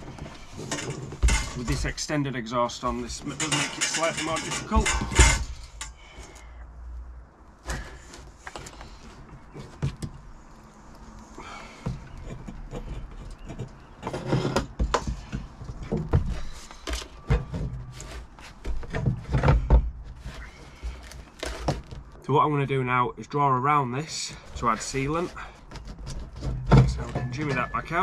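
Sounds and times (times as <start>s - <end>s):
metal pipe knocking and scraping: 0.0s - 2.1s, 2.9s - 6.0s, 11.8s - 21.9s, 24.9s - 28.0s.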